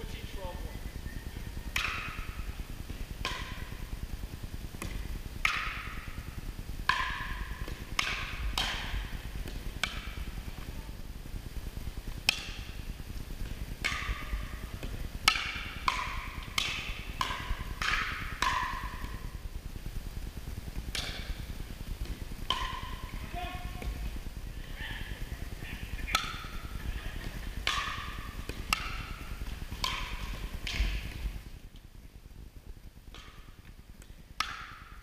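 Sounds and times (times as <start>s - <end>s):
paddles striking plastic ball: 26.1s - 31.4s.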